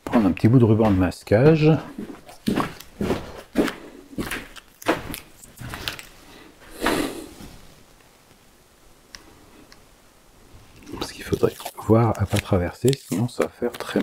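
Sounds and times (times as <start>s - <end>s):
footsteps: 0.0s - 7.7s
masking tape tearing off roll: 10.9s - 14.0s.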